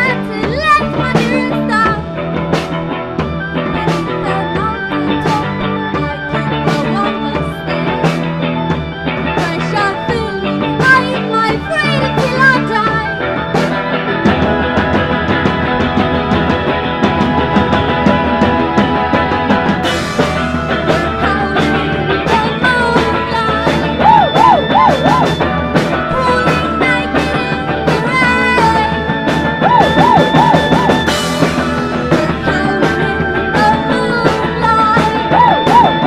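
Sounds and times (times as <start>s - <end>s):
woman singing: 0.0s - 2.1s, 3.6s - 8.3s, 9.2s - 13.3s, 20.7s - 25.4s, 26.0s - 31.2s, 31.9s - 36.0s
drum kit with cymbals: 0.0s - 36.0s
electric guitar: 0.0s - 36.0s
electric keyboard sustained notes: 0.0s - 36.0s.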